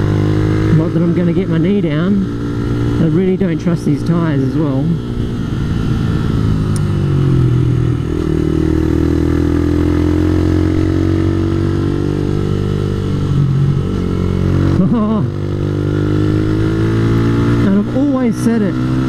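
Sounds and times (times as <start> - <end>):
motorcycle engine under load: 0.0 - 18.1.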